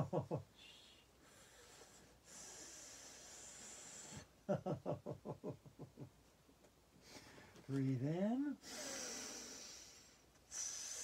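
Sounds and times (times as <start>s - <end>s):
woman breathing in deeply: 0.6s - 4.3s, 8.6s - 11.0s.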